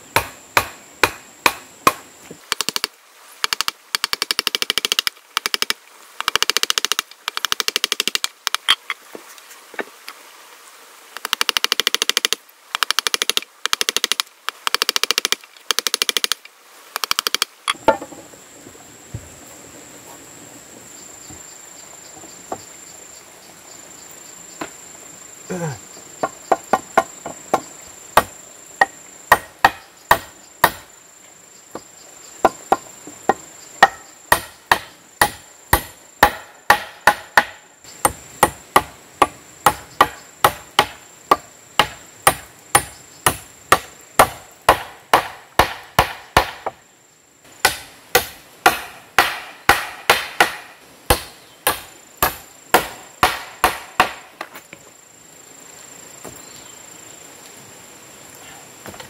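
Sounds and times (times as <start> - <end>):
high insect drone: 0.0 - 59.0
hammer striking chisel: 0.2 - 2.0, 33.8 - 46.7, 47.6 - 54.2.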